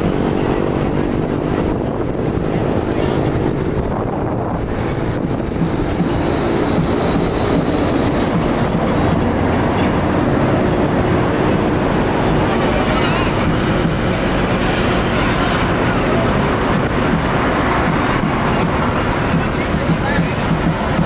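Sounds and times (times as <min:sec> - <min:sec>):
vehicle engine and road noise: 0:00.0 - 0:21.0
wind on microphone: 0:00.0 - 0:21.0.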